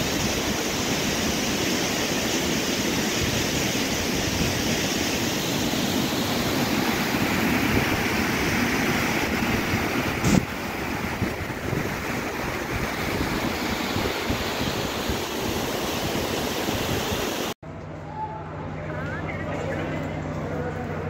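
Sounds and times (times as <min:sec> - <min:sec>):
waterfall rushing and splashing: 0:00.0 - 0:17.6.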